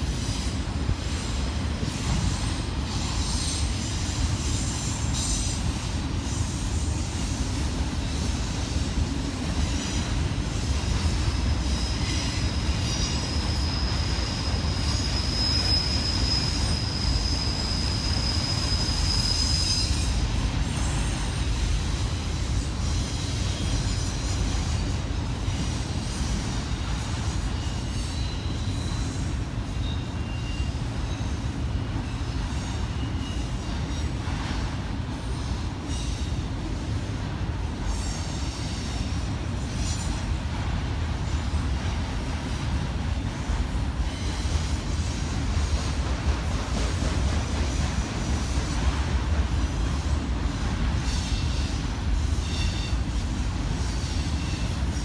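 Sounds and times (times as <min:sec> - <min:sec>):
train wheels rumbling on rail: 0:00.0 - 0:55.0
high wheel squeal: 0:00.2 - 0:07.3, 0:08.0 - 0:34.6, 0:50.8 - 0:55.0.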